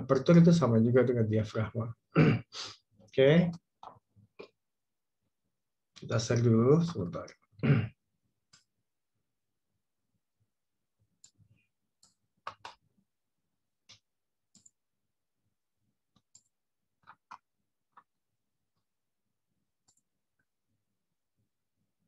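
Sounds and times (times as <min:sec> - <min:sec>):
computer mouse clicks: 0:11.2 - 0:12.9, 0:13.8 - 0:14.8, 0:16.1 - 0:18.1, 0:19.8 - 0:20.1.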